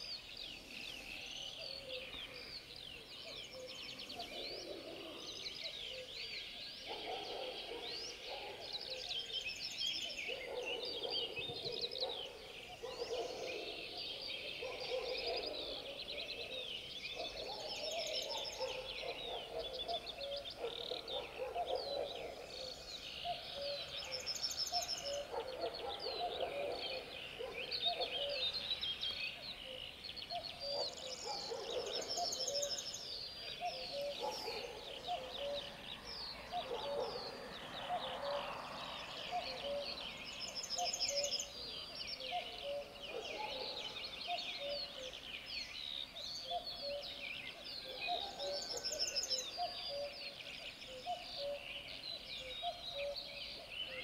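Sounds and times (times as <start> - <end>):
songbirds chirping and singing: 0.0 - 54.0.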